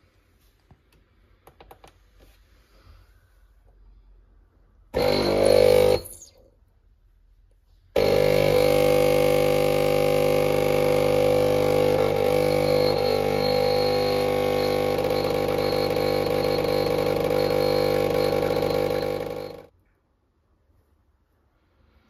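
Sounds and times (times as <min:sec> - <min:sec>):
espresso machine pump buzzing: 0:05.0 - 0:06.3, 0:08.0 - 0:19.7.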